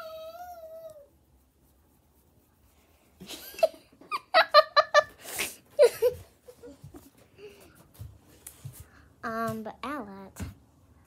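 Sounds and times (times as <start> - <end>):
faint shuffling: 5.0 - 10.6.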